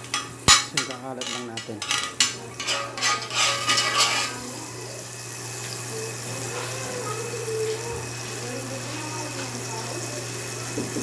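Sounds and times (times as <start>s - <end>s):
metal utensil scraping grill pan: 0.0s - 4.8s
butter sizzling in pan: 0.0s - 11.0s.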